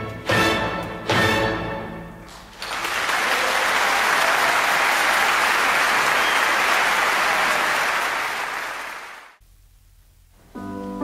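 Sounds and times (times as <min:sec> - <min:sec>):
audience applause: 0:02.3 - 0:09.4.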